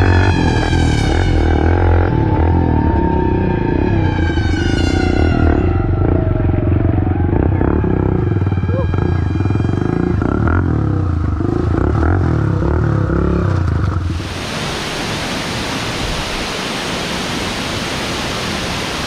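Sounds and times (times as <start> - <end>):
dirt bike engine running: 0.0 - 14.2
steady rushing noise: 13.9 - 19.0.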